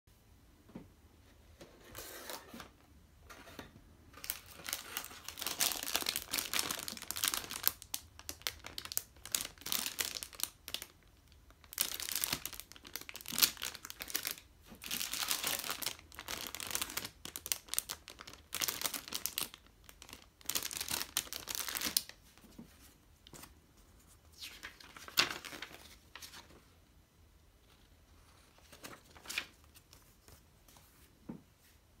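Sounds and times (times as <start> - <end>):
plastic bags crinkling: 4.2 - 22.2
paper sheet handled: 22.4 - 26.6.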